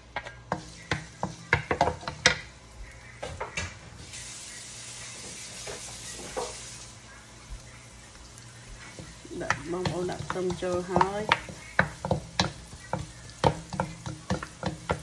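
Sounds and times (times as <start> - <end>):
oil sizzling: 0.0 - 15.0
wooden spatulas scraping wok: 5.0 - 6.8.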